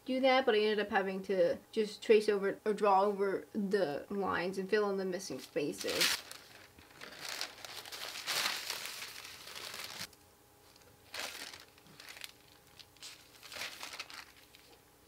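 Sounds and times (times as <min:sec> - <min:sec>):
thin paper rustling and crinkling: 0:05.4 - 0:14.8.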